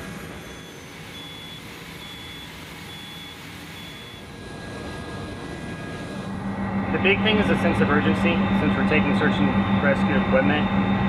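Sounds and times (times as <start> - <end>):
electronic warning beeps: 0.0 - 6.3
pickup truck engine running: 0.0 - 11.0.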